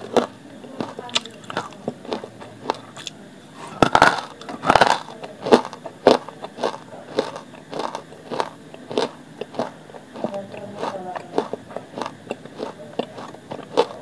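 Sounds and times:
chewing with crisp crunches: 0.0s - 14.0s
biting into clay crunch: 0.2s - 10.3s.

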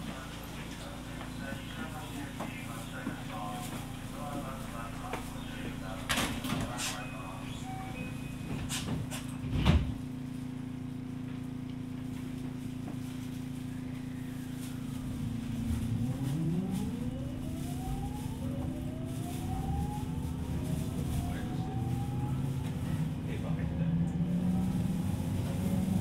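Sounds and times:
train hum: 0.0s - 26.0s
train inverter whine rising: 10.6s - 26.0s.

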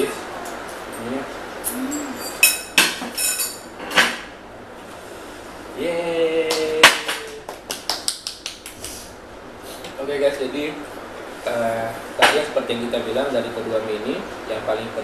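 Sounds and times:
held vocal note: 1.7s - 2.4s
hand claps: 6.4s - 8.9s.

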